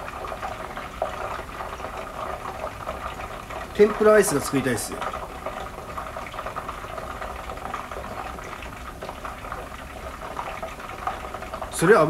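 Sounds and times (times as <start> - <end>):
batter frying in hot oil: 0.0 - 12.0.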